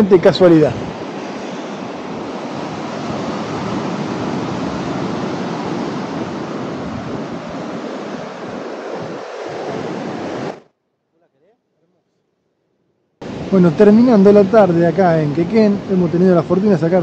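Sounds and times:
wind buffeting microphone: 0:00.0 - 0:10.6
surf breaking on beach: 0:00.0 - 0:10.7, 0:13.2 - 0:16.9.

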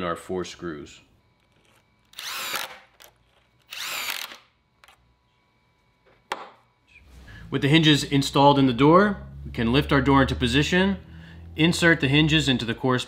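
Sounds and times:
power drill whirring: 0:01.6 - 0:04.5.

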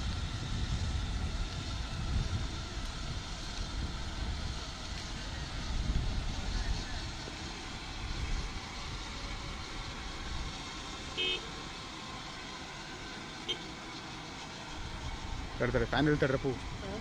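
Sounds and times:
helicopter rotor rumble: 0:00.0 - 0:17.0
short horn-like beep: 0:11.2 - 0:11.5.

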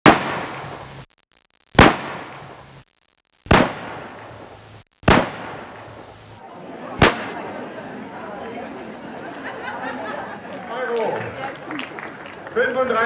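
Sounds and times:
loud sharp bangs: 0:00.0 - 0:00.8, 0:01.8 - 0:02.6, 0:03.5 - 0:06.3, 0:07.0 - 0:07.4.

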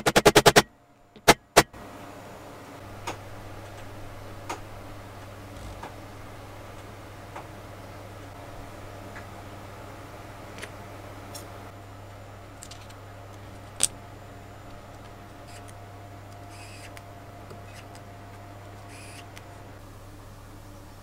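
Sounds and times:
steady low hum: 0:00.0 - 0:21.0
electric screwdriver whirring: 0:16.5 - 0:17.0, 0:18.9 - 0:19.3.

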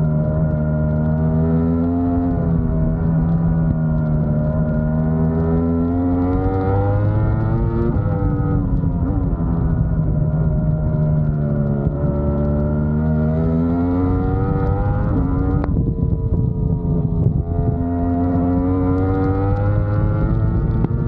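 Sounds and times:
motorcycle engine at race pace: 0:00.0 - 0:21.0
wind rush: 0:06.6 - 0:21.0.

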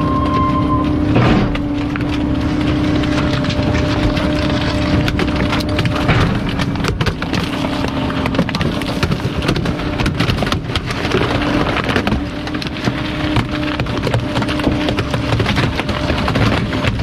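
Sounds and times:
truck engine and hydraulic drone: 0:00.0 - 0:06.9
plastic cracking and snapping: 0:01.4 - 0:17.0.

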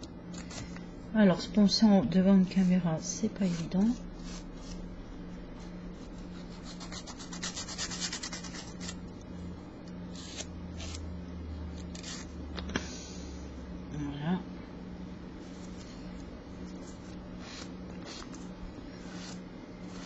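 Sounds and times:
nail file scratching fingernail: 0:06.3 - 0:09.0.

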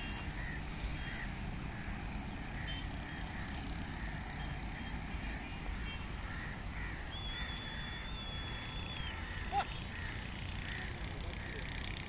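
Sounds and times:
crows cawing: 0:00.1 - 0:12.0.

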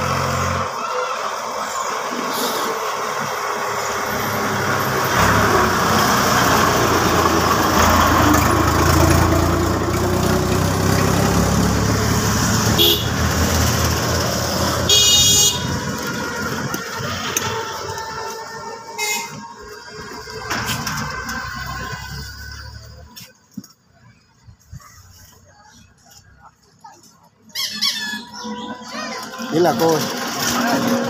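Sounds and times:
vehicle engine rumbling: 0:00.0 - 0:31.0
short high-pitched horn toot: 0:12.7 - 0:13.2.

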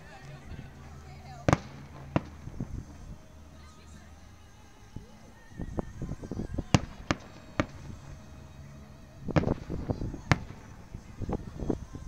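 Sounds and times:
fireworks loud bangs: 0:01.4 - 0:03.2, 0:06.6 - 0:08.2, 0:09.3 - 0:11.5
fireworks pops and crackles: 0:01.4 - 0:03.4, 0:06.3 - 0:08.3, 0:09.3 - 0:12.0.

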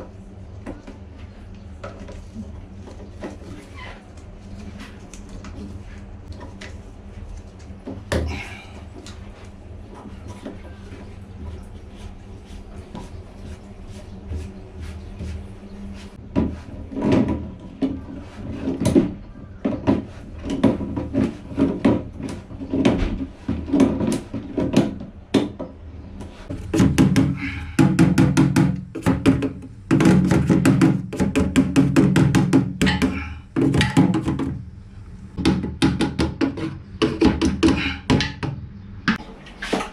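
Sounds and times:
knocks clicks and rattles of pipework: 0:16.3 - 0:34.6, 0:35.4 - 0:39.9.

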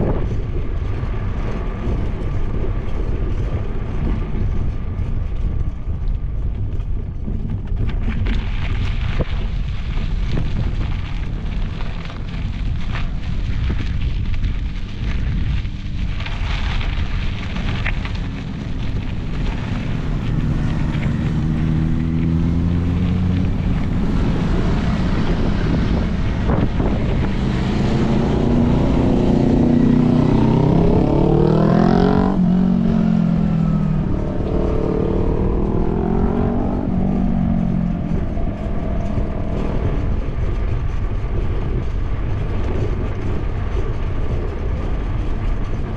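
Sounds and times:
wind on microphone: 0:00.0 - 0:45.9
motorcycle engines revving: 0:17.4 - 0:45.9.

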